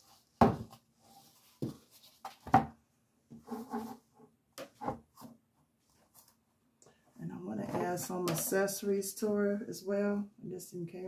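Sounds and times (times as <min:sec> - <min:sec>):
soft rubbing and rustling: 0:00.0 - 0:02.5, 0:03.3 - 0:04.1.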